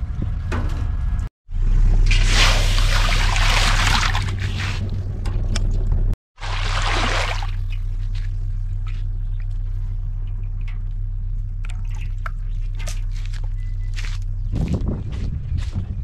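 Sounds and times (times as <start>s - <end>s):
steady low hum: 0.0s - 16.0s
water splashing: 2.0s - 5.0s, 6.4s - 13.6s
wet squelches and drips: 6.4s - 14.3s.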